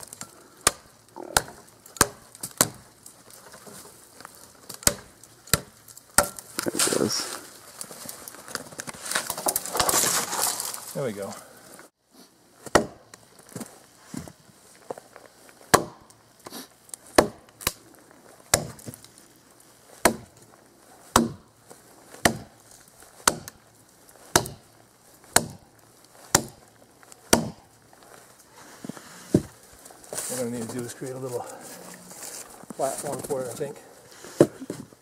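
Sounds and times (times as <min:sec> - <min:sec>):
hatchet chopping into a log: 0:00.6 - 0:02.8, 0:04.7 - 0:06.6, 0:12.7 - 0:13.0, 0:15.7 - 0:16.0, 0:17.1 - 0:17.8, 0:18.5 - 0:18.9, 0:20.0 - 0:20.3, 0:21.1 - 0:21.4, 0:22.2 - 0:22.5, 0:23.2 - 0:23.6, 0:24.3 - 0:24.6, 0:25.3 - 0:25.6, 0:26.3 - 0:26.6, 0:27.3 - 0:27.6.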